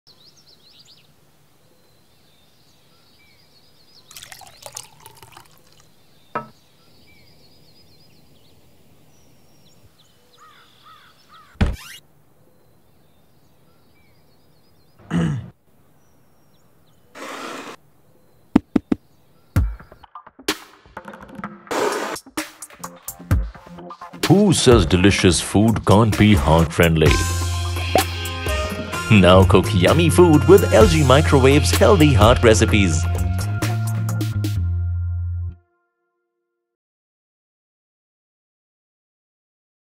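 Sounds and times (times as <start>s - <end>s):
knocks and thuds: 18.6s - 19.0s.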